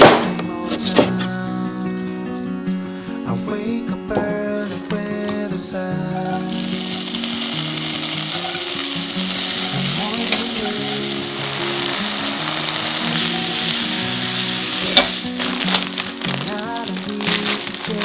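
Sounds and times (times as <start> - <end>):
food sizzling in a hot pan: 6.2 - 18.0.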